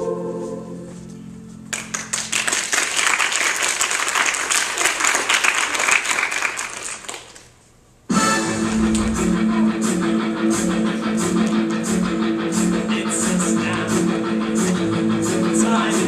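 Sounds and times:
crowd applauding: 0:01.7 - 0:07.5
held final chord of song: 0:08.1 - 0:10.8.

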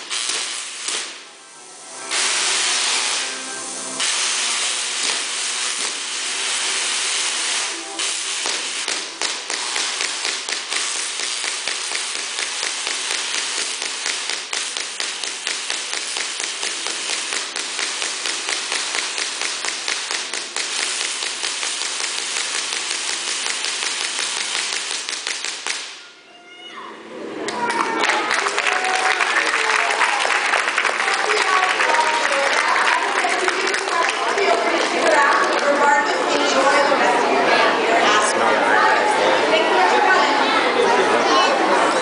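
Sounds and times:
tesla coil arcs buzzing and crackling: 0:00.0 - 0:26.0.

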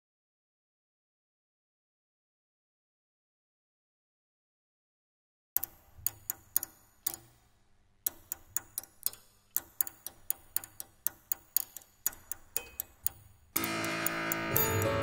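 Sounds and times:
stick tapping piano strings: 0:08.1 - 0:15.0.

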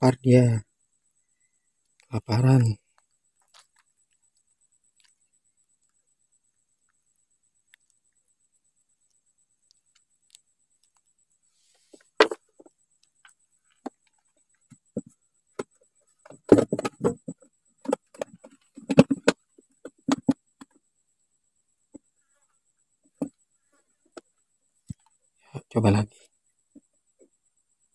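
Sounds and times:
sharp knocks and clicks: 0:11.9 - 0:20.8.

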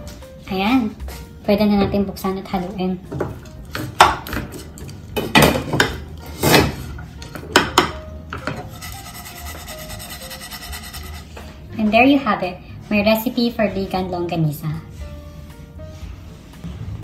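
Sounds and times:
wooden spoon scraping a frying pan: 0:08.4 - 0:11.6.

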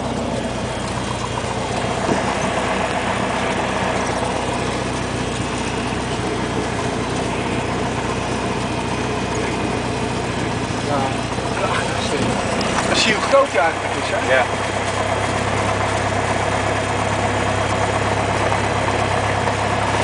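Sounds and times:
aircraft engine and propeller drone: 0:00.0 - 0:20.0.

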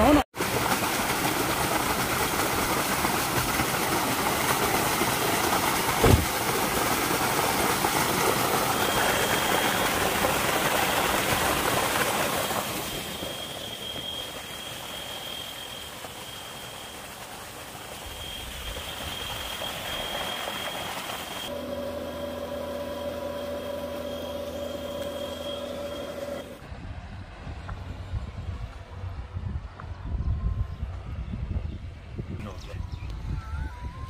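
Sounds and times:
water gushing into a tank: 0:00.4 - 0:21.5
thin steady high tone: 0:12.4 - 0:17.0, 0:18.0 - 0:26.6.

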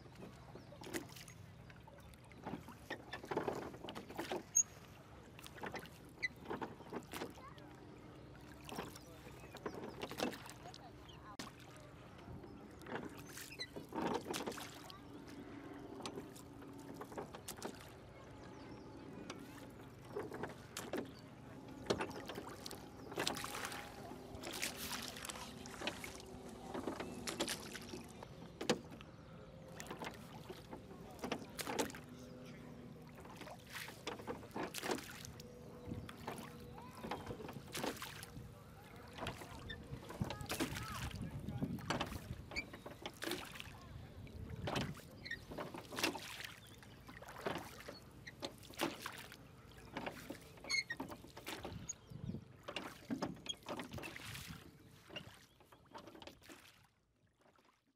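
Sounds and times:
oars dipping and splashing: 0:00.0 - 0:57.9
low wash of water: 0:14.3 - 0:50.5.

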